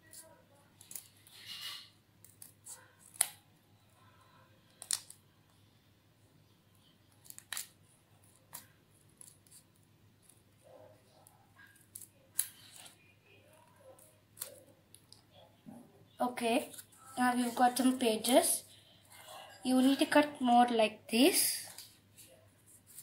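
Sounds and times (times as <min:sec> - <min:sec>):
scissors snipping paper: 0:00.0 - 0:03.4, 0:07.1 - 0:10.4, 0:11.6 - 0:12.9, 0:13.6 - 0:15.1.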